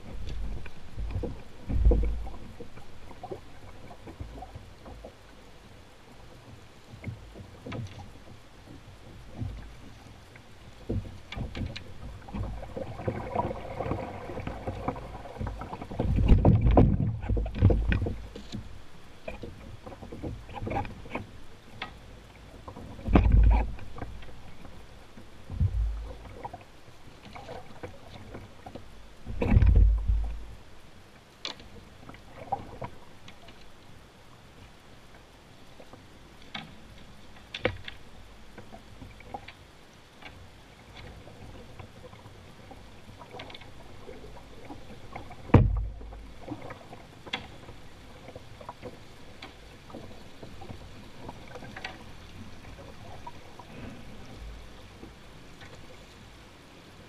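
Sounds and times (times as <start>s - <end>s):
river rushing around hull: 0.0s - 57.0s
heavy deep thumps: 25.5s - 26.1s, 29.3s - 30.5s, 45.5s - 46.1s.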